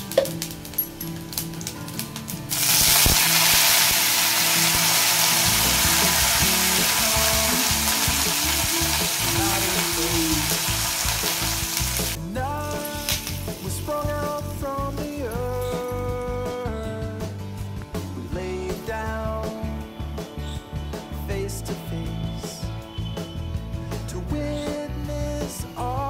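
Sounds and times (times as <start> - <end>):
hot oil sizzling: 0.0 - 17.0.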